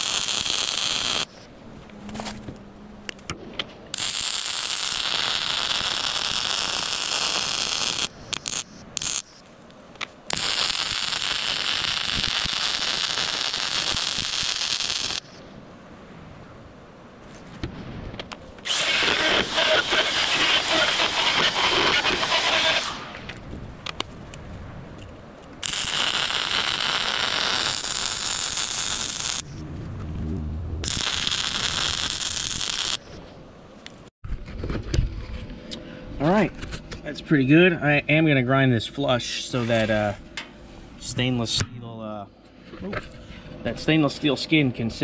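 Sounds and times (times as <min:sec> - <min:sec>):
welding arc crackling: 0:00.0 - 0:01.4, 0:03.9 - 0:09.4, 0:10.3 - 0:15.4, 0:18.6 - 0:23.2, 0:25.6 - 0:29.6, 0:30.8 - 0:33.2.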